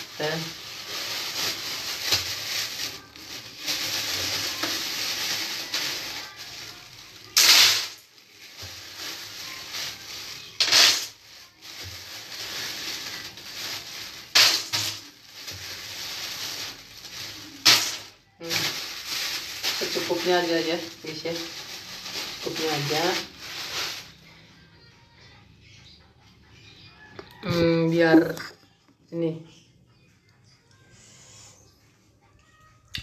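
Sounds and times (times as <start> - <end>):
plastic bag crinkling: 0.0 - 24.4.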